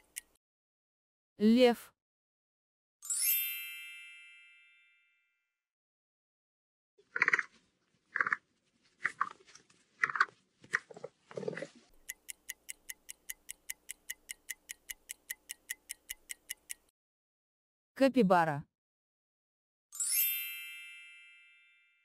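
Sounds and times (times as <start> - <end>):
countdown timer ticking: 12.0 - 16.9.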